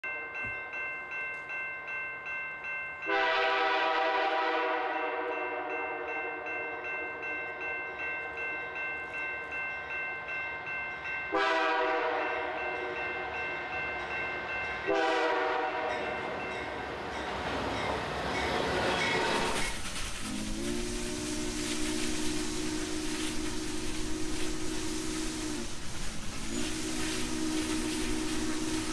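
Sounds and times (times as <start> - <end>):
crossing bell dinging: 0.0 - 19.8
passing train rumble: 3.0 - 28.9
locomotive air horn blasts: 3.1 - 6.2, 11.3 - 13.0, 14.9 - 16.2, 20.2 - 28.9.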